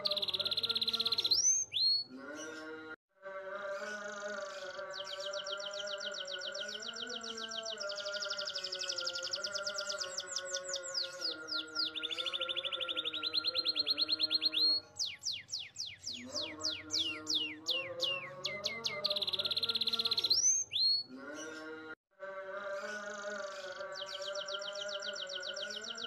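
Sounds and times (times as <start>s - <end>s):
canary singing: 0.0s - 2.9s, 3.6s - 21.8s, 22.7s - 26.0s.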